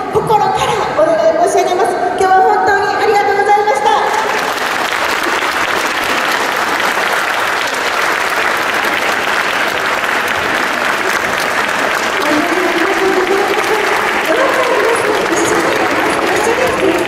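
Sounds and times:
dense hand clapping: 0:04.1 - 0:17.0.

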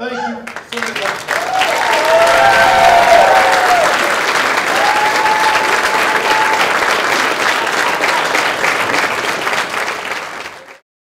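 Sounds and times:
audience applauding: 0:00.4 - 0:10.8.

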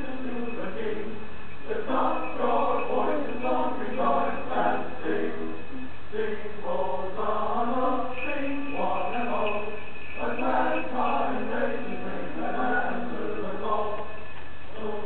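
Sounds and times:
person singing wordless melody: 0:00.0 - 0:15.0.

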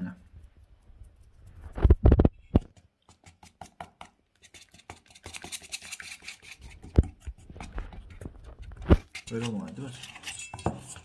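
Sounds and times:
whisk scraping metal bowl: 0:02.7 - 0:11.0.

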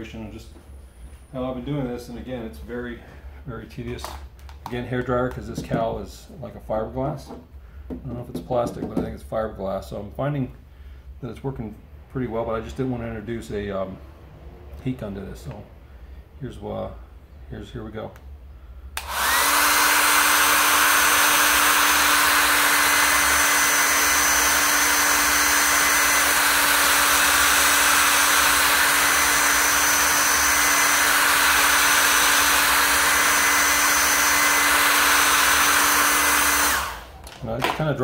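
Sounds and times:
hair dryer running: 0:19.0 - 0:37.8.

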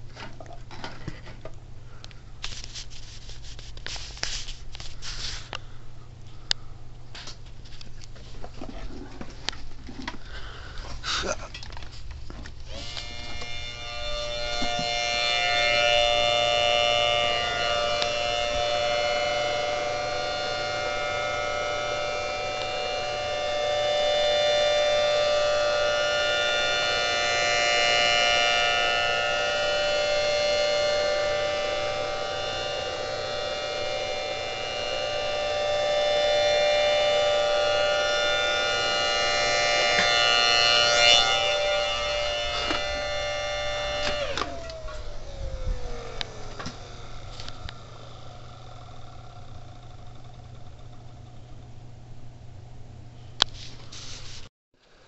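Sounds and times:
siren two-note wail: 0:12.8 - 0:49.2.

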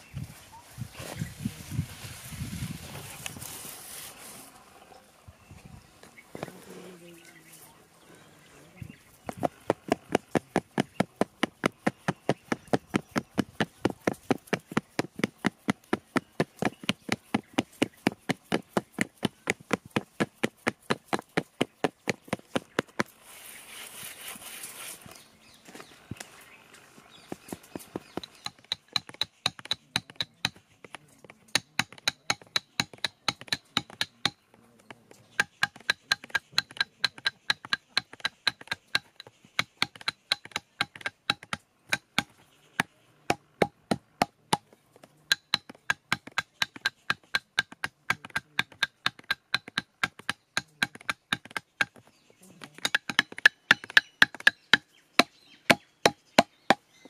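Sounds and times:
iron bar tapping bamboo rammer: 0:28.2 - 0:30.6, 0:31.5 - 0:34.4, 0:35.3 - 0:42.3, 0:45.3 - 0:52.0, 0:52.7 - 0:56.8.

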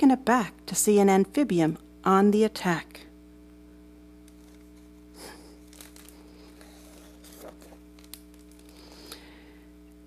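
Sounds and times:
steady electrical hum: 0:00.0 - 0:10.0
book page turning: 0:04.3 - 0:09.1.

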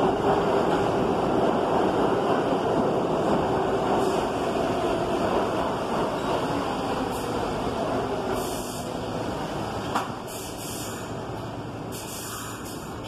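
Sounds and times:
subway train rumble: 0:00.0 - 0:13.0
short air hisses: 0:08.4 - 0:08.9, 0:10.3 - 0:11.2, 0:11.9 - 0:12.9.

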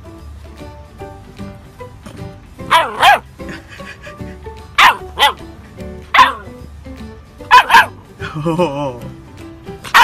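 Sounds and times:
background music: 0:00.0 - 0:10.0
puppy barking: 0:02.7 - 0:03.3, 0:04.8 - 0:05.5, 0:06.1 - 0:06.6, 0:07.5 - 0:08.0.

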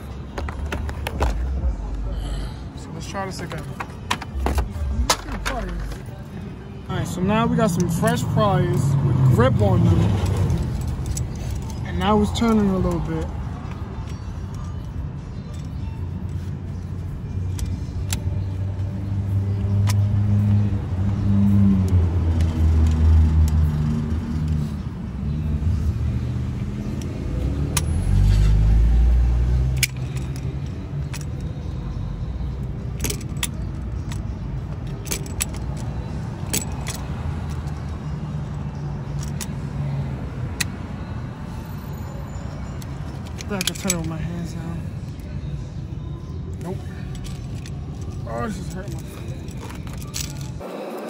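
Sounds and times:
road traffic rumble: 0:00.0 - 0:51.0
metal clinks of pliers and wrench: 0:32.8 - 0:38.2, 0:42.7 - 0:44.2.

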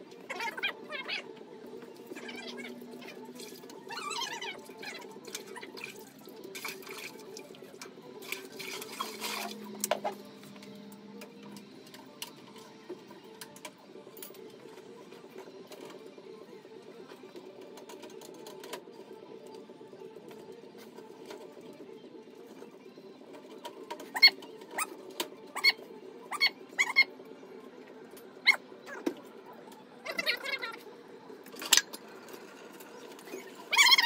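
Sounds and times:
water sloshing and dripping: 0:03.0 - 0:10.5.

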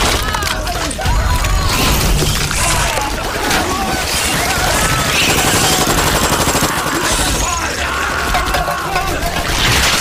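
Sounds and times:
rapid automatic rifle fire: 0:03.4 - 0:07.4.

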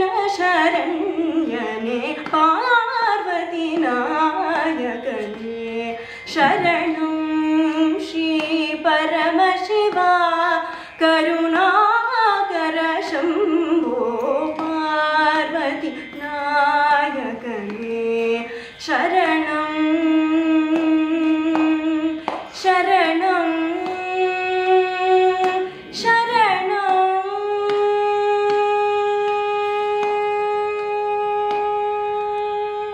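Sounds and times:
woman singing: 0:00.0 - 0:32.9.

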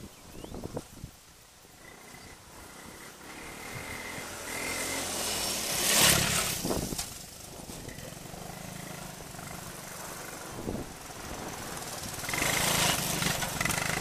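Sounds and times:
three-wheeler engine passing by: 0:01.7 - 0:14.0
tyres on gravel: 0:04.3 - 0:14.0.

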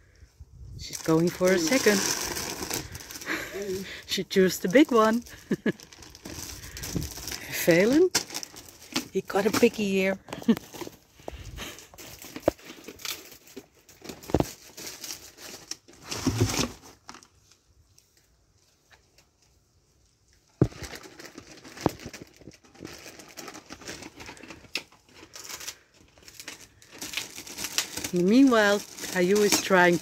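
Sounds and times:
dog tearing paper wrapping: 0:01.3 - 0:03.4, 0:20.6 - 0:30.0.

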